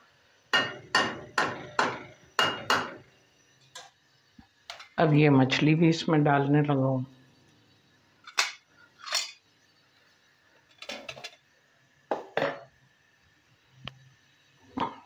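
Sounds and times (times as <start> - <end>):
steel cookware clinking: 0.6 - 3.0, 8.2 - 9.4, 10.7 - 11.4.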